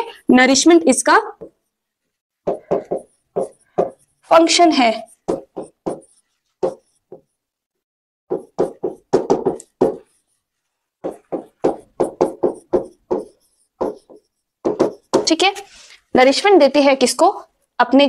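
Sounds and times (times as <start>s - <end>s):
pen knocking on screen: 1.4s - 1.6s, 2.4s - 4.0s, 5.3s - 7.3s, 8.3s - 10.2s, 11.0s - 15.4s.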